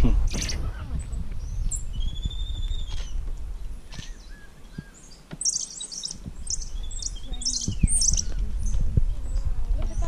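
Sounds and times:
high-pitched animal chirping: 5.4 - 8.4.

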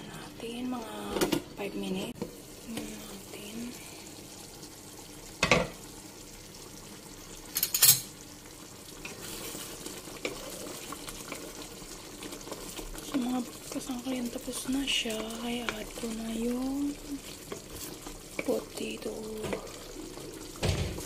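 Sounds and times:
curry simmering in a pan: 0.1 - 21.0
cookware clattering: 5.4 - 5.8, 7.5 - 8.2
wooden spoon stirring thick sauce: 9.0 - 20.6.

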